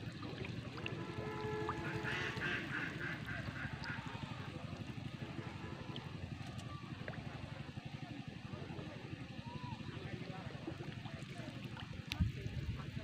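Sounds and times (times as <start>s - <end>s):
ducks quacking: 0.9s - 5.6s.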